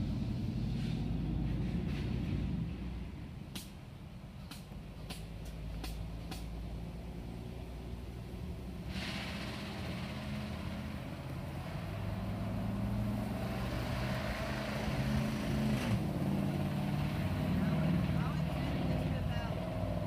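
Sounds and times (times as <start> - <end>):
engine humming: 0.0 - 20.0
rushing hiss: 8.6 - 16.0.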